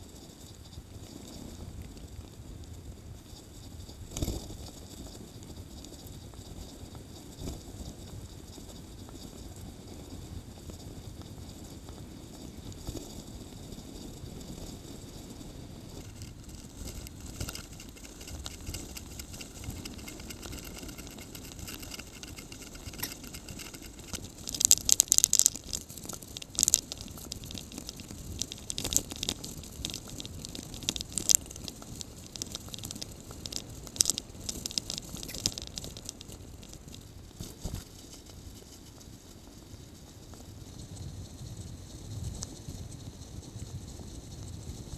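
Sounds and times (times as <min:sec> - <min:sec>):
tyre and wind noise: 0:00.0 - 0:44.9
bike rattling and clicking: 0:15.8 - 0:38.8.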